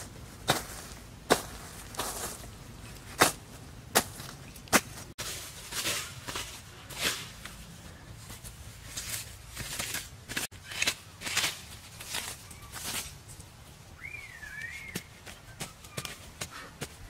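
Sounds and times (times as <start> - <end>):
blade hacking grass: 0.0 - 7.6, 8.9 - 13.2.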